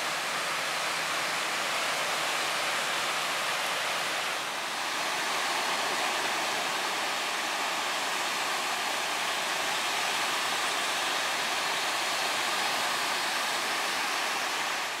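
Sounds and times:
waves breaking on beach: 0.0s - 15.0s.

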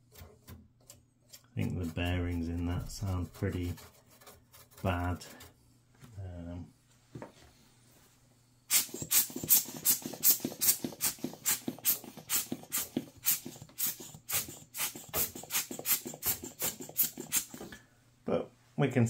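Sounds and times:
hand air blower puffing: 8.7s - 17.8s.

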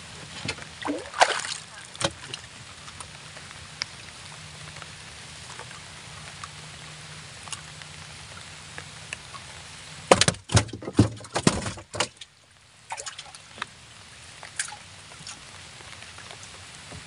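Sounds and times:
faint hiss: 0.0s - 10.6s, 12.2s - 17.0s
knocks against wooden boat: 10.1s - 12.1s.

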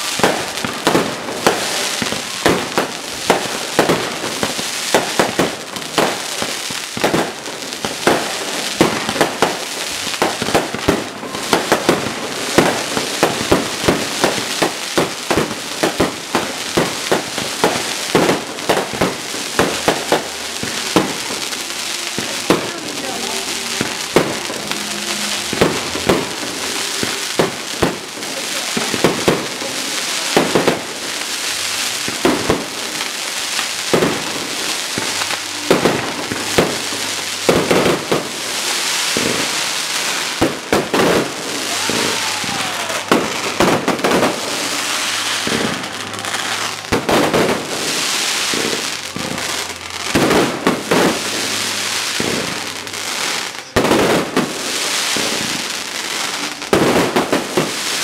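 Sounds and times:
firework shells bursting: 0.0s - 51.4s
fireworks crackling: 0.0s - 58.0s.

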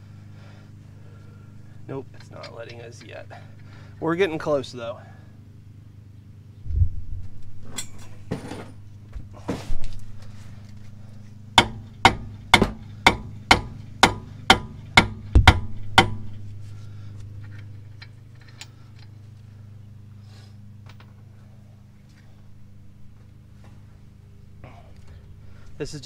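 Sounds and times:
rubber mallet striking metal: 11.6s - 16.4s.

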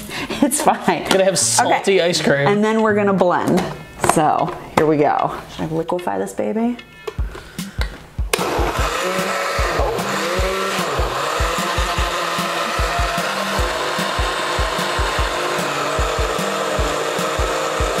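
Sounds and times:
blender motor running: 8.3s - 18.0s.

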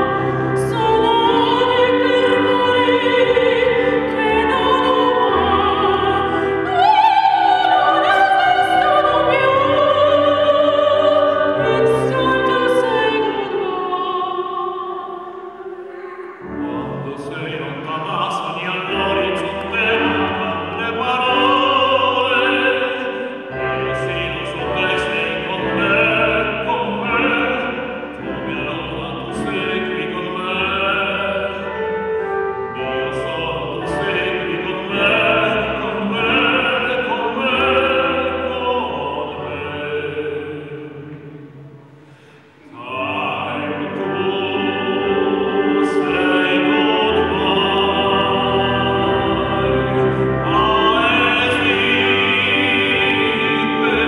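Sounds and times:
woman singing opera: 0.0s - 16.8s
tenor singing: 0.0s - 54.0s.

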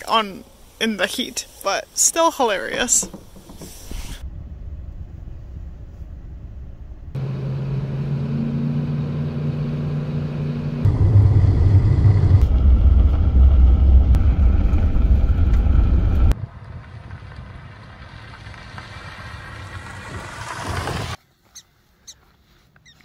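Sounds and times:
car engine hum: 3.0s - 21.2s
tyres rumbling on gravel: 10.8s - 21.2s.

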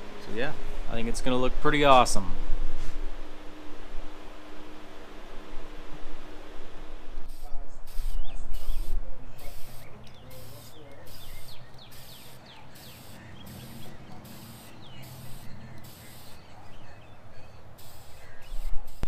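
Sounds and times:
aerosol spray can hissing: 7.3s - 16.5s, 17.8s - 19.0s
birds chirping: 7.4s - 19.0s.

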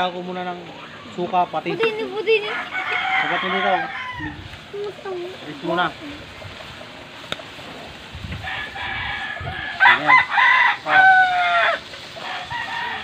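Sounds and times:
rooster crowing: 2.4s - 4.5s, 8.4s - 13.0s.

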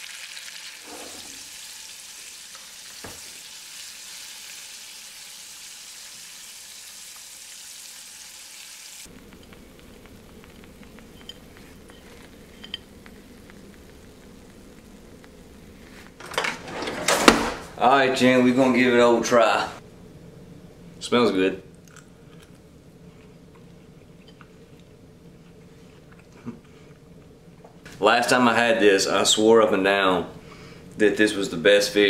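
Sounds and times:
high sizzle of deep-frying: 0.0s - 16.2s.

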